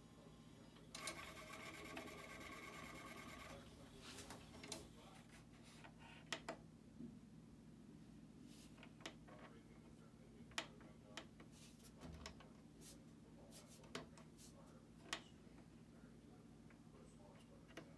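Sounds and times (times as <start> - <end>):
disc drive whirring: 0.0 - 5.1.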